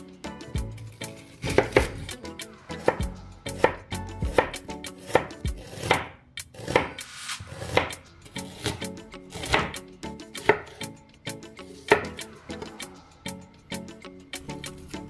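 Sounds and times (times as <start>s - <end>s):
knife slicing onion on board: 1.0s - 2.2s, 2.8s - 10.9s, 11.7s - 12.8s.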